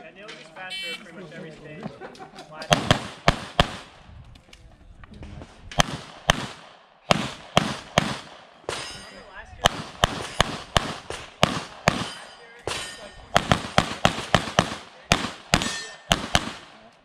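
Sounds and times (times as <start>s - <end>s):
pistol firing fast shots: 2.7s - 3.9s, 5.8s - 8.8s, 9.6s - 12.2s, 13.3s - 16.7s.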